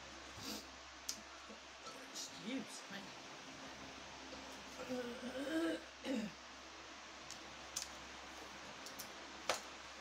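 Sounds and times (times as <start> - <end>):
woman murmuring: 4.7 - 6.4.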